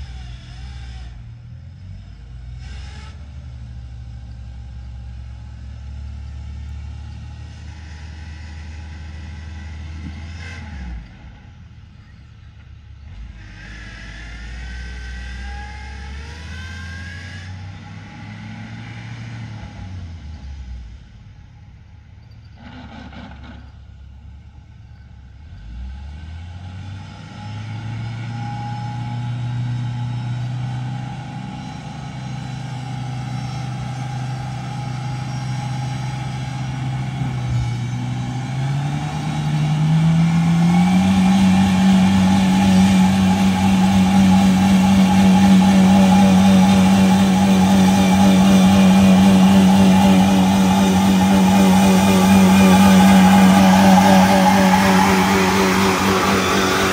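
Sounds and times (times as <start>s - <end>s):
engine revving under load: 0.0s - 11.9s, 13.0s - 21.2s, 22.6s - 23.9s, 25.4s - 56.9s.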